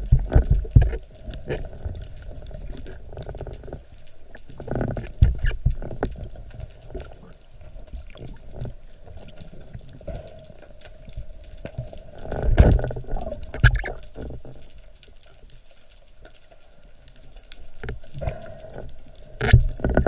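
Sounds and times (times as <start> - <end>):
water splashing: 0.0 - 20.0
water gurgling and bubbling: 7.9 - 14.6.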